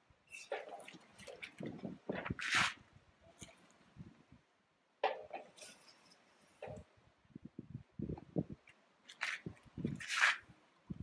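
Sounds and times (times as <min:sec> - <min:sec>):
fabric swishing: 0:09.2 - 0:10.5.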